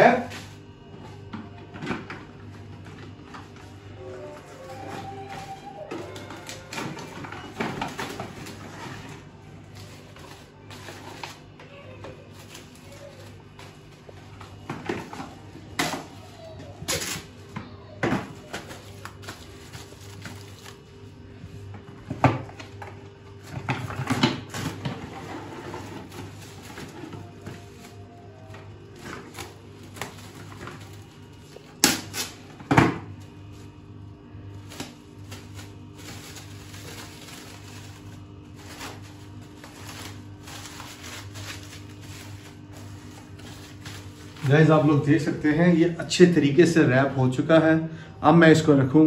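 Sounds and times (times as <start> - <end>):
cling wrap crinkling: 4.2 - 14.7, 18.3 - 21.7, 34.5 - 45.5.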